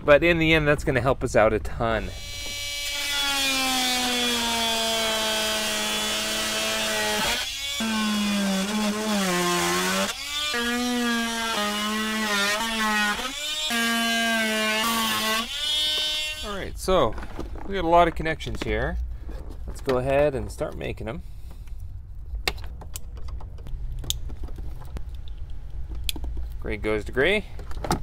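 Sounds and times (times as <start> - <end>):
oscillating multi-tool cutting plastic: 2.1 - 16.5.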